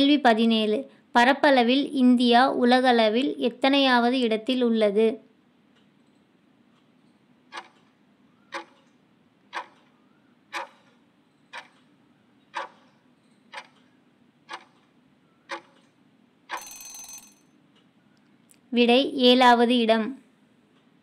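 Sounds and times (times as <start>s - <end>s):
clock ticking: 5.7s - 18.0s
short ringing alarm: 16.5s - 17.6s.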